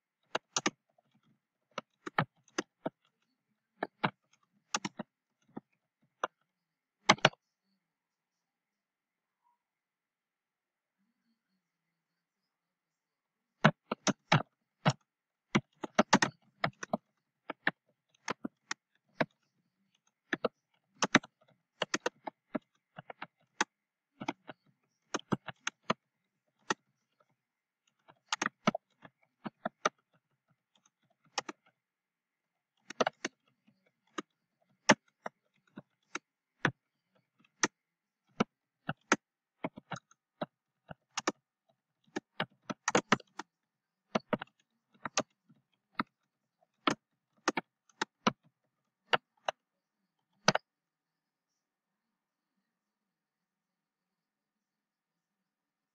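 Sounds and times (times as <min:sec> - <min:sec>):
keyboard key clicks: 0:00.3 - 0:00.8, 0:03.8 - 0:05.6, 0:07.1 - 0:07.4, 0:15.6 - 0:19.3, 0:20.3 - 0:26.0, 0:32.8 - 0:33.4, 0:37.5 - 0:41.4, 0:42.1 - 0:43.5, 0:44.1 - 0:45.4, 0:46.8 - 0:48.4, 0:50.4 - 0:50.6.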